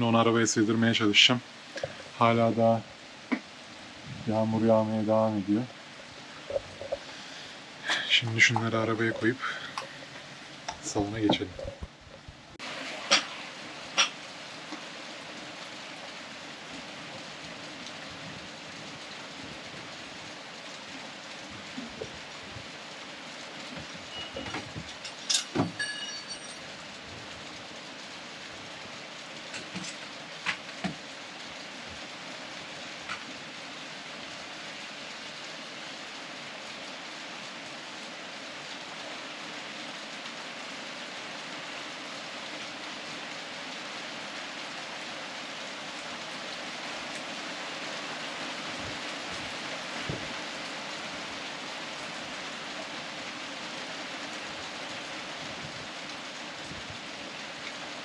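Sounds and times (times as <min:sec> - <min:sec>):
steady rain falling: 0:00.0 - 0:58.0.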